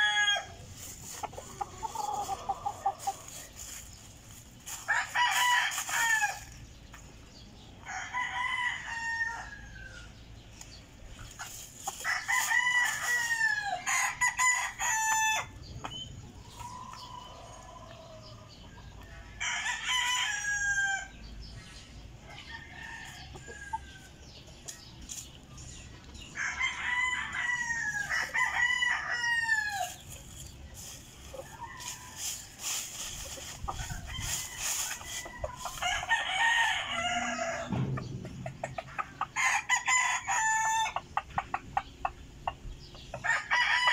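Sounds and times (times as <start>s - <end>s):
roosters crowing: 0.0s - 3.8s, 4.6s - 6.7s, 7.7s - 10.3s, 11.8s - 15.7s, 16.4s - 21.4s, 22.1s - 24.4s, 26.2s - 41.6s, 43.2s - 43.9s.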